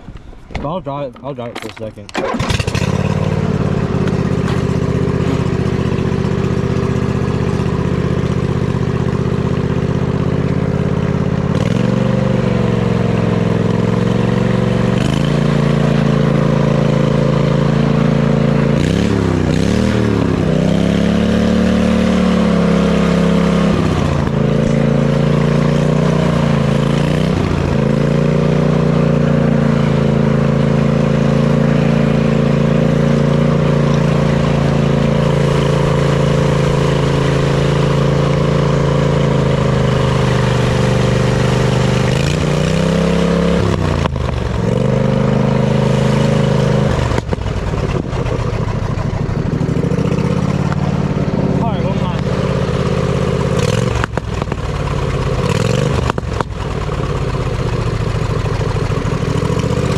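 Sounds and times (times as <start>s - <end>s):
riding mower engine running loud: 0.0s - 59.9s.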